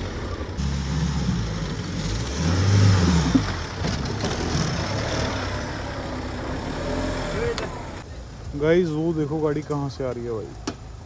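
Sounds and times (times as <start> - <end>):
engine revving: 0.0 - 8.0.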